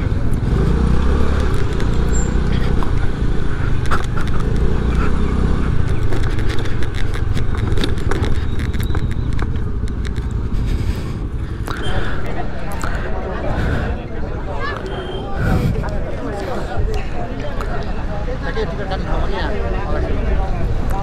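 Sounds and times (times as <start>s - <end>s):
scooter engine running: 0.0s - 13.8s.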